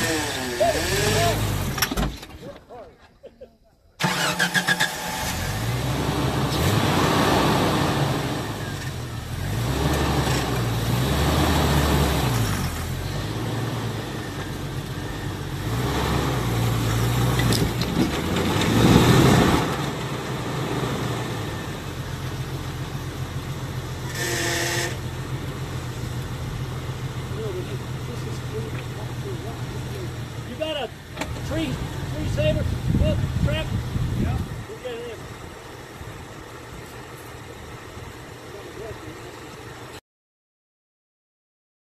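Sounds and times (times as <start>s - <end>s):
engine revving: 0.0s - 2.0s, 4.0s - 35.3s.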